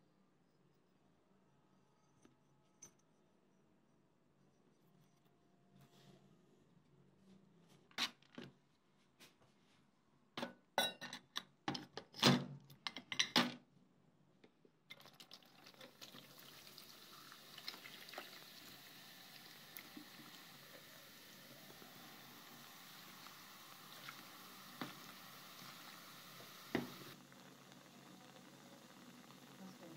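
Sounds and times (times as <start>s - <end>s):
liquid pouring from a bottle: 14.9s - 18.8s.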